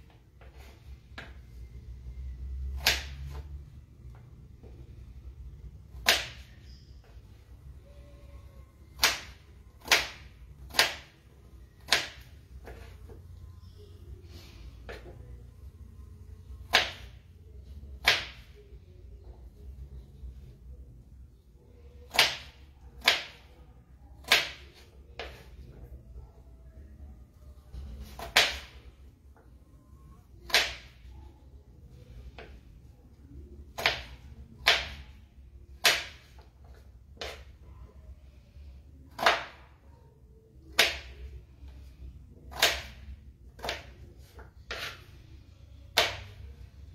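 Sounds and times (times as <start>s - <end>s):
low steady hum: 0.0s - 46.9s
knife chopping on plastic board: 2.7s - 3.4s, 5.9s - 6.5s, 8.9s - 11.2s, 11.8s - 13.2s, 16.6s - 17.2s, 18.0s - 18.6s, 22.1s - 23.5s, 24.2s - 25.4s, 27.9s - 28.8s, 30.4s - 31.1s, 33.7s - 35.2s, 35.8s - 37.5s, 39.1s - 39.7s, 40.7s - 41.2s, 42.5s - 43.0s, 43.6s - 45.0s, 45.9s - 46.4s.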